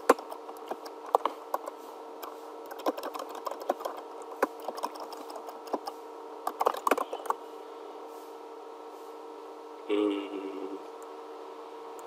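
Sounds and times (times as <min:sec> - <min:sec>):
steady background hum: 0:00.0 - 0:12.0
keyboard keys clicking: 0:00.1 - 0:01.7, 0:02.7 - 0:05.9, 0:06.5 - 0:07.4.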